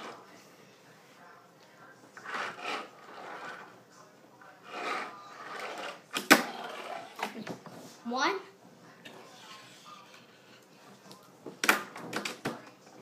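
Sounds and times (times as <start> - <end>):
fingerboard wheels rolling: 2.2 - 3.8, 4.6 - 7.3.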